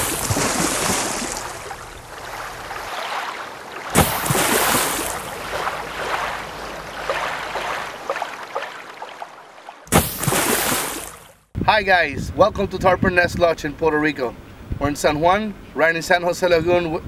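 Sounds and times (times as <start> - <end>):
waves breaking: 0.0 - 11.5.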